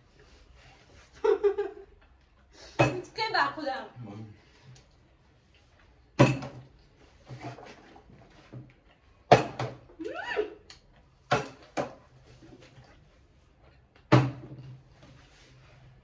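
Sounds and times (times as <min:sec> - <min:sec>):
plastic bottle thudding on table: 0:09.3 - 0:09.8, 0:14.1 - 0:14.6.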